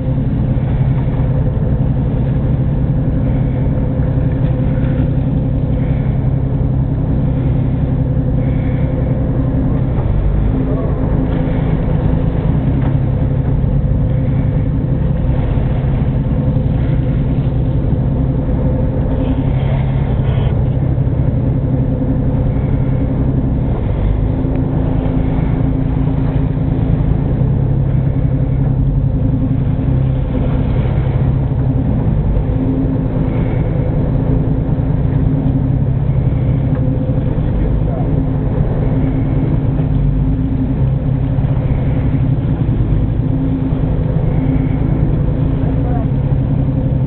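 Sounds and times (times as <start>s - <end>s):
boat engine humming: 0.0s - 47.0s.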